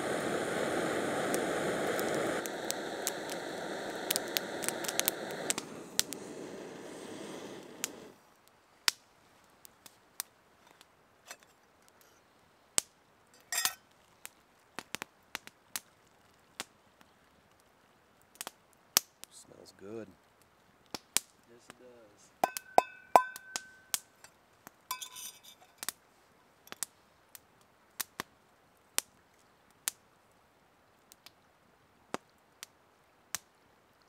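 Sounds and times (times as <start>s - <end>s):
gas stove burning: 0.0s - 8.2s
metal pot and lid clinking: 13.4s - 13.8s, 22.4s - 23.8s, 24.9s - 25.8s.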